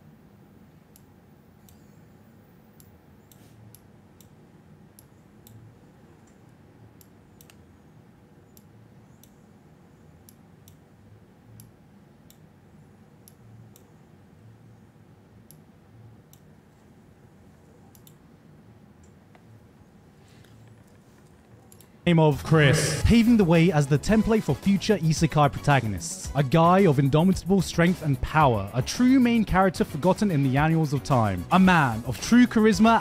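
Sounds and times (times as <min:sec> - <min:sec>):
low steady hum: 0:00.0 - 0:33.0
faint sharp clicks: 0:06.2 - 0:07.6, 0:17.9 - 0:18.2.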